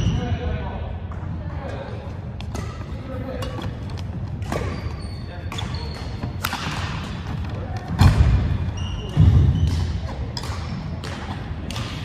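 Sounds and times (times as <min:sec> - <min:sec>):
sneakers squeaking on floor: 0:02.4 - 0:12.0
racket hitting shuttlecock: 0:05.5 - 0:07.4, 0:09.6 - 0:12.0.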